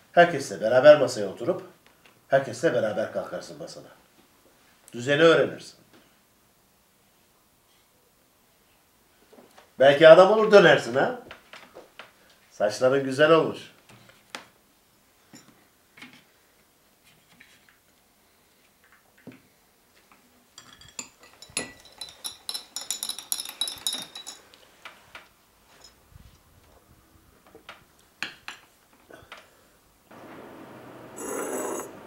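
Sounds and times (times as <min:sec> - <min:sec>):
teaspoon clinking in tea glass: 0:20.6 - 0:24.4, 0:31.2 - 0:31.9.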